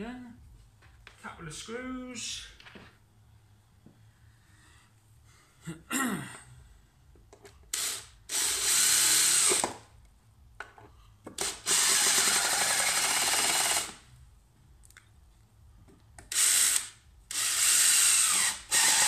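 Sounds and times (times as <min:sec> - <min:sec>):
cordless drill driving screws: 0:07.7 - 0:09.7, 0:11.4 - 0:14.0, 0:16.3 - 0:19.0.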